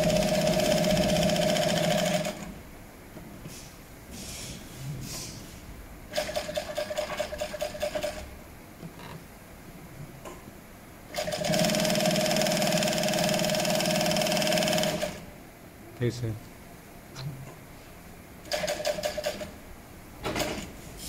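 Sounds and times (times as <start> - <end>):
sewing machine stitching leather: 0.0 - 2.5, 6.1 - 8.2, 11.1 - 15.2, 18.5 - 19.5.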